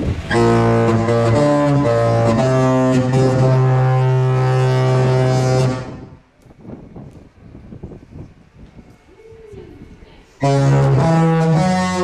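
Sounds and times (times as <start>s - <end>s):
ship's musical horn: 0.1s - 6.2s, 10.4s - 12.0s.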